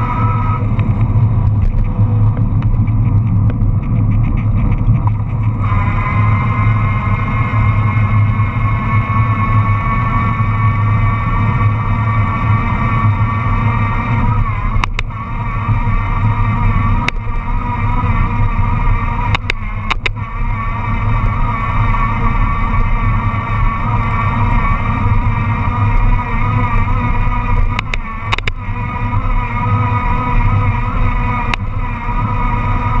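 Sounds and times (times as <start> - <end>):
road rumble: 0.0 - 33.0
steady wavering whine: 0.0 - 33.0
wind buffeting microphone: 0.0 - 33.0
bike clicks and knocks: 0.7 - 5.6, 19.3 - 20.3, 27.7 - 28.6.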